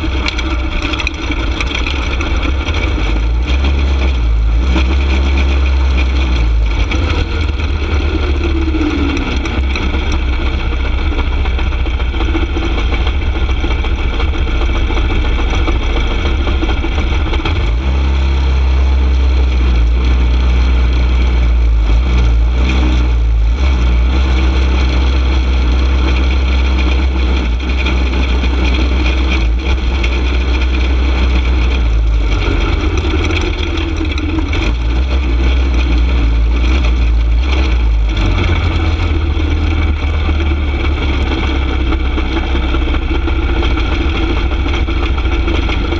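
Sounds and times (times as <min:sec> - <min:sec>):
go-kart engine running: 0:00.0 - 0:45.9.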